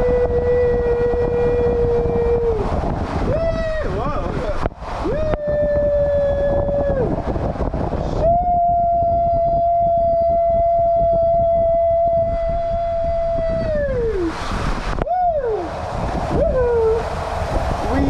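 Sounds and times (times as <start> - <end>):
rushing water: 13.0 - 18.0
person screaming: 15.0 - 15.7.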